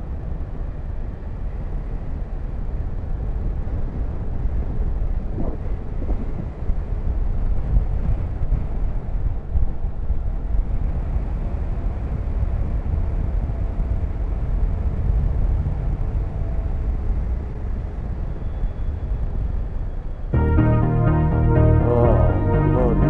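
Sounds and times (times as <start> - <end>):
wind on microphone: 1.1 - 18.4
music: 20.4 - 23.0.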